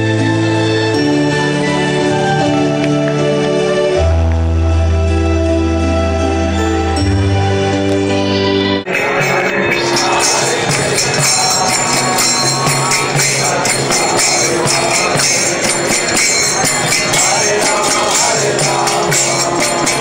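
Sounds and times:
loud music with jingling percussion: 0:00.0 - 0:02.7, 0:06.4 - 0:20.0.

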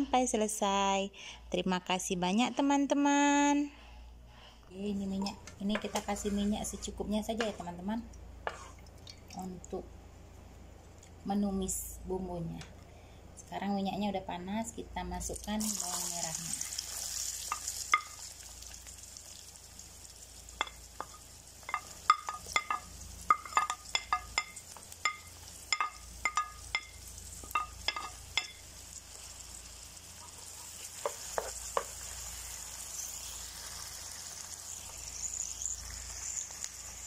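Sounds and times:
onion sizzling in hot oil: 0:15.6 - 0:37.0
spatula tapping a glass plate: 0:20.6 - 0:28.6.

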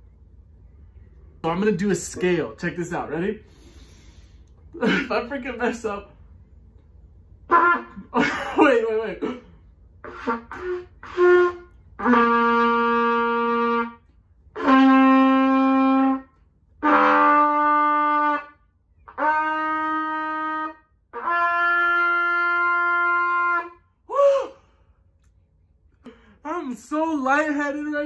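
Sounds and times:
breaths between notes: 0:03.4 - 0:04.6, 0:26.0 - 0:26.4
trumpet notes: 0:07.4 - 0:08.1, 0:10.0 - 0:24.0.

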